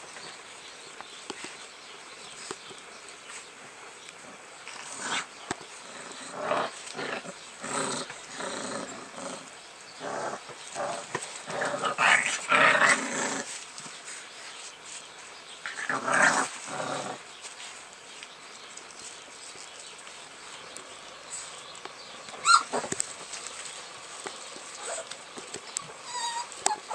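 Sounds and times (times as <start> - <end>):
puppies growling while play-fighting: 4.2 - 14.2, 15.6 - 17.8, 22.2 - 26.9.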